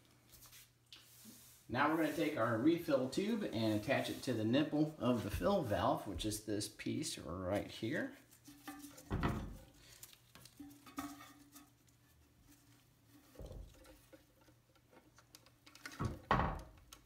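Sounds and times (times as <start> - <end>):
plastic parts clicking and scratching: 13.7 - 17.0.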